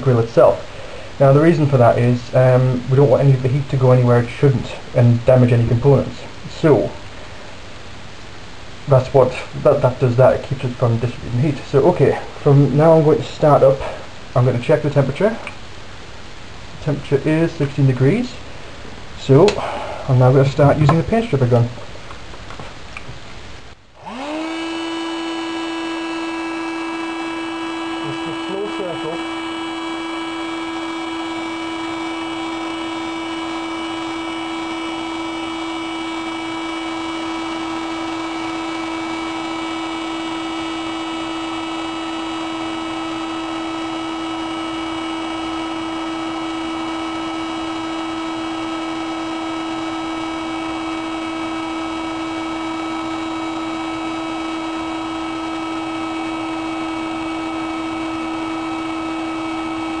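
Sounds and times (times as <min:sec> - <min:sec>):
heat gun fan humming: 0:00.0 - 1:00.0
high whining tones: 0:23.8 - 1:00.0.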